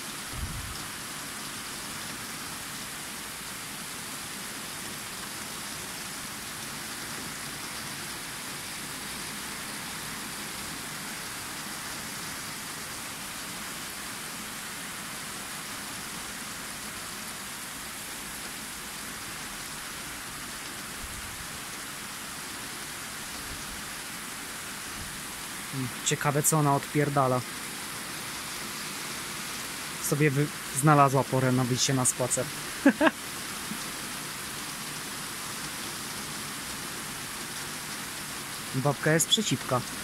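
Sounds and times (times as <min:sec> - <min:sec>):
heavy rain pouring: 0:00.0 - 0:40.0.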